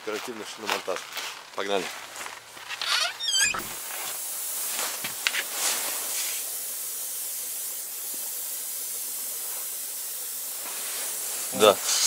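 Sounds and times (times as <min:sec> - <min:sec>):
air hissing out of tyre: 0:02.9 - 0:12.0.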